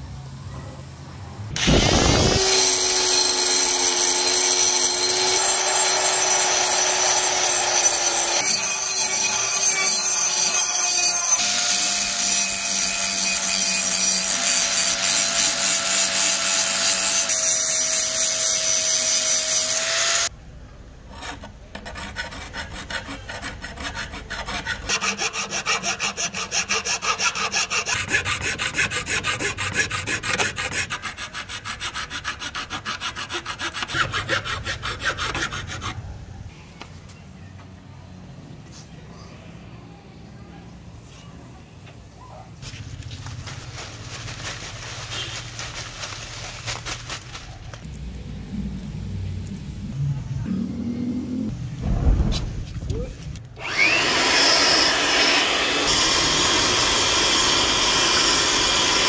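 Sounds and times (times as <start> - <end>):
rotary grinding stone whining on steel: 1.6 - 20.3
hand file rasping on steel: 21.1 - 36.0.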